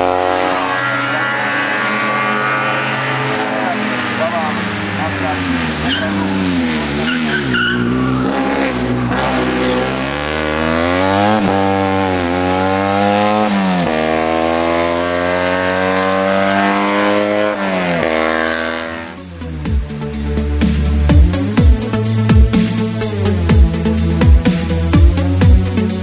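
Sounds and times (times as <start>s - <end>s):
small car engine revving: 0.0s - 19.5s.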